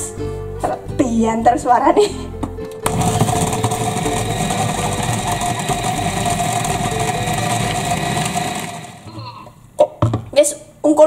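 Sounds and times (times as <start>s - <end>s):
food processor motor whining: 2.8s - 9.2s.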